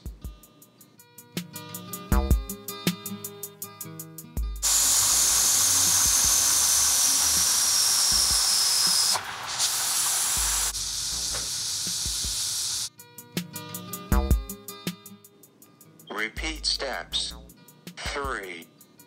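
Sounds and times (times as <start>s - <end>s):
pressure cooker steam hissing: 4.6s - 12.9s
high whistle sliding downward: 4.7s - 9.2s.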